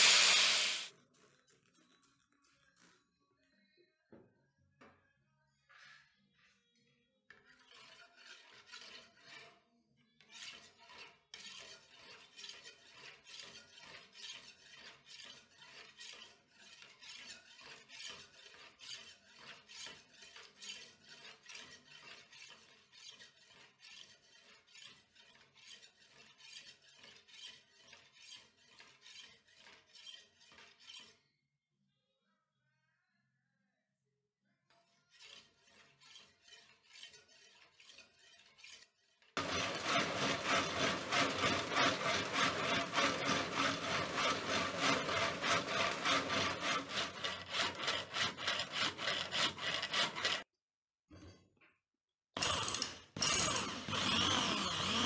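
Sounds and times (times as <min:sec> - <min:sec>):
blade scraping on sharpening stone: 0:00.0 - 0:01.4, 0:07.3 - 0:31.4, 0:34.7 - 0:50.5.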